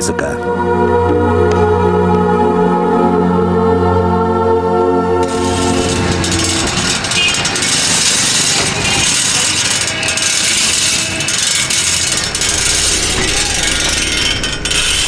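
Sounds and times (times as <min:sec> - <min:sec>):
bicycle chain rattling and clicking: 0:05.2 - 0:15.0
low engine rumble: 0:05.2 - 0:15.0
street traffic: 0:05.2 - 0:15.0.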